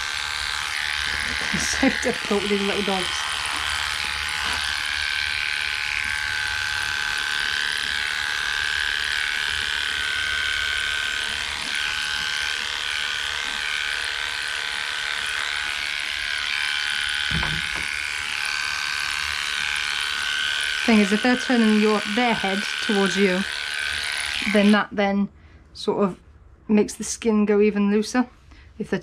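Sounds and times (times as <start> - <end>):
dog clipper running: 0.0 - 24.8
low thump: 17.3 - 17.9.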